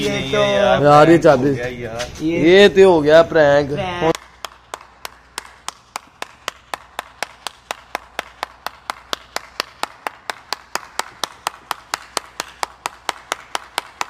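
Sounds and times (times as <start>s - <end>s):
person clapping hands: 4.1s - 14.0s.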